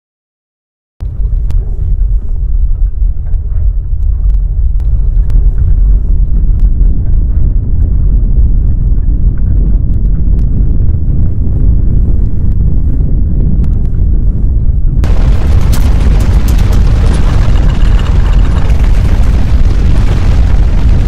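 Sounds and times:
deep rumble of earthquake shaking: 0:01.0 - 0:21.0
sharp knocks and rattles: 0:15.0 - 0:21.0.

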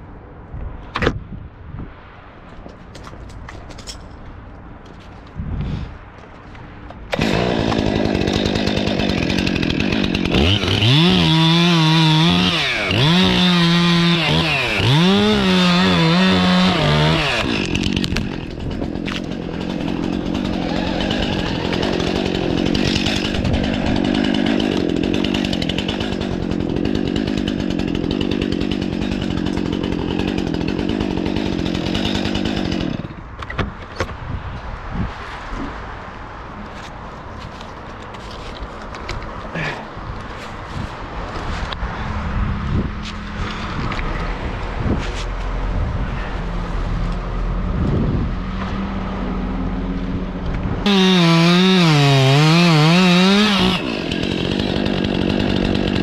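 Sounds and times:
chainsaw revving and cutting: 0:07.1 - 0:33.2, 0:50.8 - 0:56.0.

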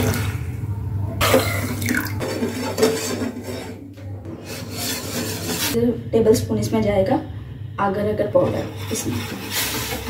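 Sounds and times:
metal spoon scraping saucepan: 0:02.2 - 0:05.8, 0:08.2 - 0:10.0.

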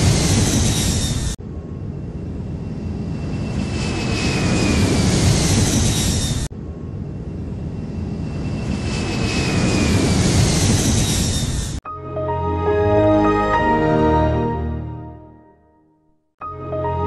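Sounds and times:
jet engine roar with whine: 0:00.0 - 0:11.8.

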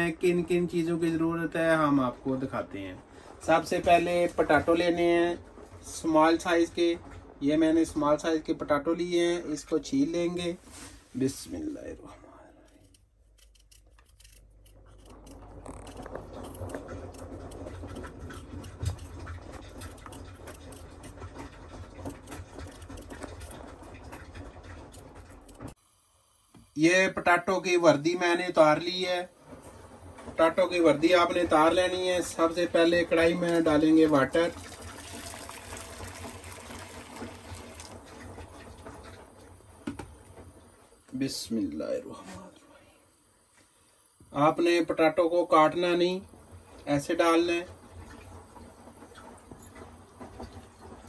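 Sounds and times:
peeler scraping potato skin: 0:12.7 - 0:25.8
water pouring into a pan: 0:16.8 - 0:25.8, 0:30.0 - 0:39.6
knock: 0:39.8 - 0:40.1.

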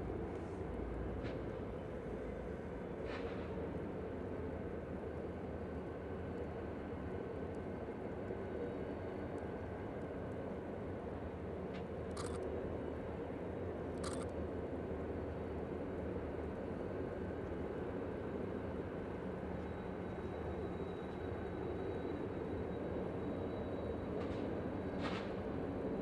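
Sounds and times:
distant diesel locomotives rumbling: 0:00.0 - 0:13.9.

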